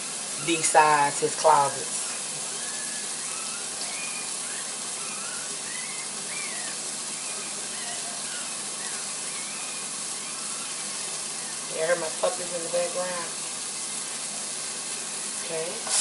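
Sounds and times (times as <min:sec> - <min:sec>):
meat sizzling in a skillet: 0:00.0 - 0:16.0
puppies whimpering: 0:00.3 - 0:00.9, 0:02.0 - 0:13.2.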